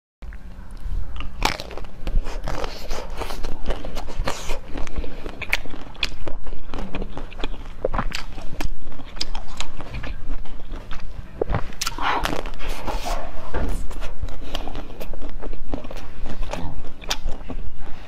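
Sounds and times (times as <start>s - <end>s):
chewing crunchy jelly: 0.3s - 18.0s.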